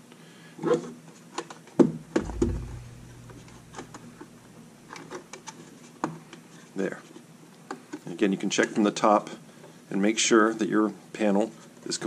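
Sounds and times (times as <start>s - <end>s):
low thump: 2.1s - 4.3s.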